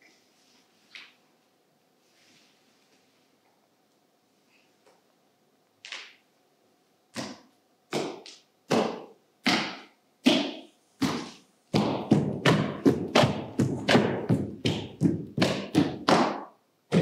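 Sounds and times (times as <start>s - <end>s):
drum beats: 11.0s - 17.0s.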